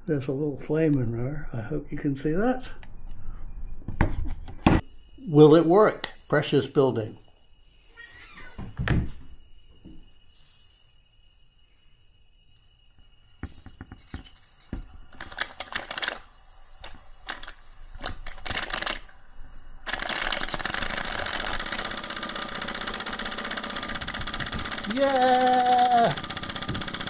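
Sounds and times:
steam valve hiss: 0:05.2 - 0:06.8, 0:10.2 - 0:11.3, 0:13.2 - 0:14.4, 0:16.0 - 0:18.4.

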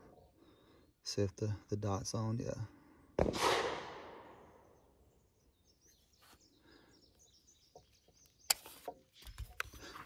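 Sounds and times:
distant gunshot echoing: 0:03.2 - 0:04.4.

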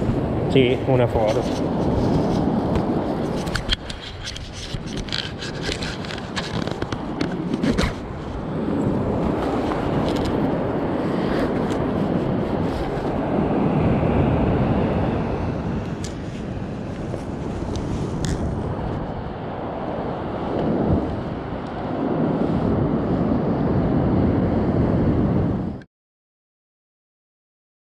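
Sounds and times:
wind buffeting microphone: 0:00.0 - 0:25.8
sharp crackles and clicks: 0:00.6 - 0:08.4, 0:09.4 - 0:10.5, 0:15.8 - 0:19.0.

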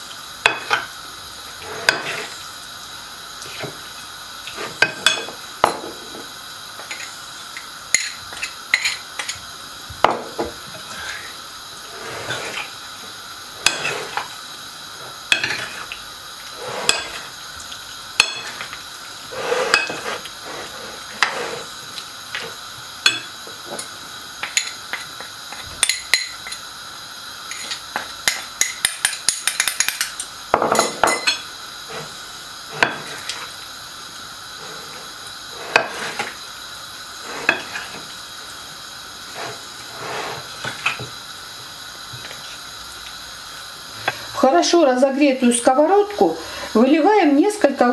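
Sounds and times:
metal spoon scraping porcelain plate: 0:01.6 - 0:02.4, 0:11.9 - 0:12.7, 0:13.6 - 0:14.3, 0:16.6 - 0:17.3, 0:19.3 - 0:21.7, 0:35.6 - 0:36.3, 0:37.3 - 0:38.0.

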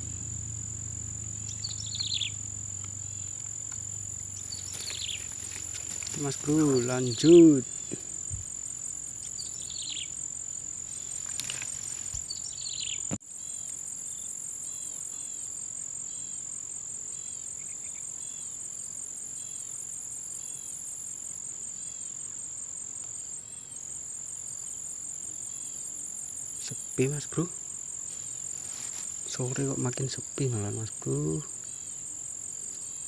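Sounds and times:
crickets droning: 0:00.0 - 0:33.0
bird chirping: 0:01.2 - 0:10.2, 0:10.9 - 0:13.2
rustling: 0:02.8 - 0:08.6, 0:10.9 - 0:12.3, 0:28.1 - 0:29.4.

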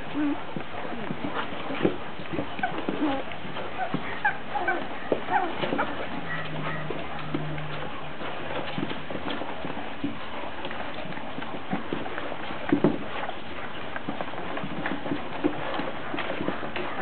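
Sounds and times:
puppies' claws clicking: 0:00.0 - 0:17.0.

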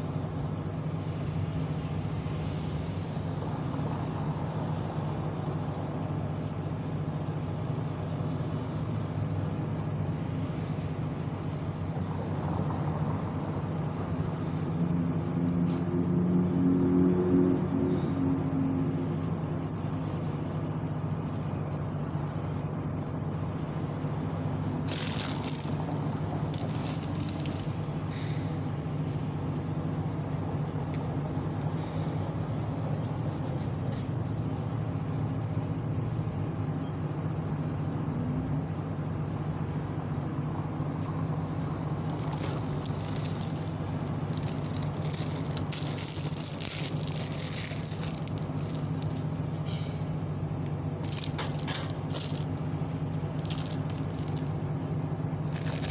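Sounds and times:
low mechanical hum: 0:00.0 - 0:55.9
packets crinkling: 0:24.9 - 0:27.9, 0:42.1 - 0:49.3, 0:51.0 - 0:54.6, 0:55.5 - 0:55.9.

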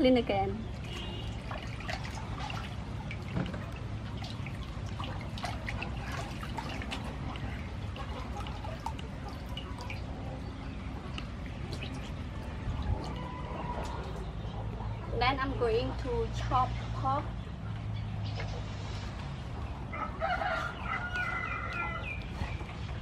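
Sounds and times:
water dripping and trickling: 0:00.0 - 0:23.0
hand washing meat in water: 0:00.6 - 0:14.8.

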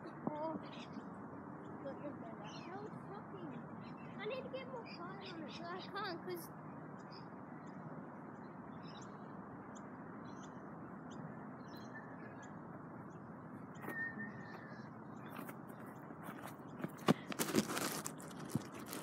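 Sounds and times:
birds chirping: 0:00.0 - 0:19.0
outdoor background noise: 0:00.0 - 0:19.0.

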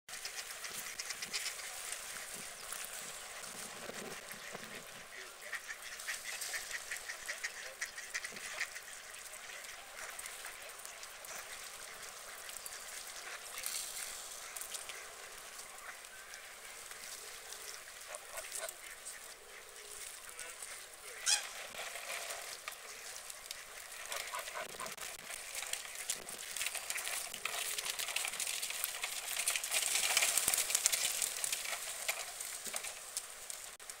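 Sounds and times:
geese honking: 0:00.1 - 0:33.0.

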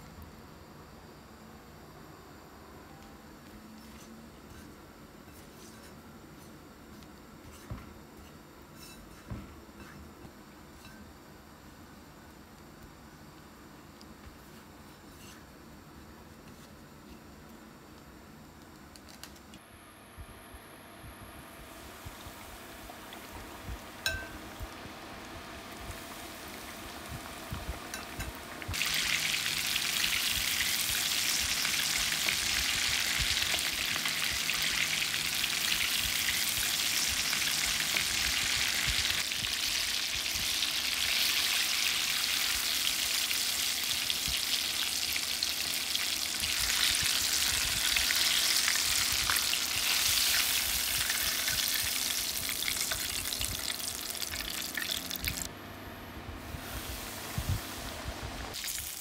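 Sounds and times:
chicken deep-frying in oil: 0:21.6 - 0:55.5, 0:56.6 - 0:59.0.

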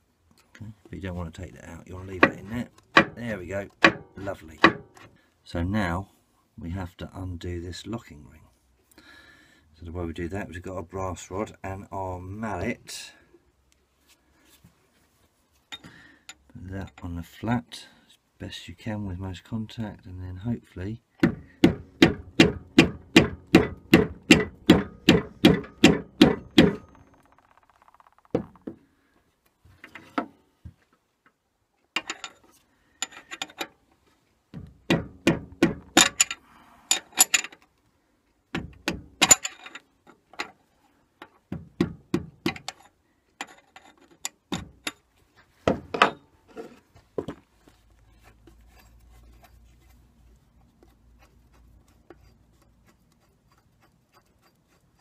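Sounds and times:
mallet tapping metal rod: 0:21.6 - 0:27.0.

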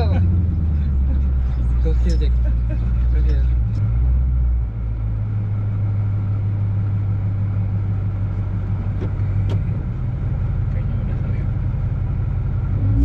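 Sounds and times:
car engine low drone: 0:00.0 - 0:13.0.

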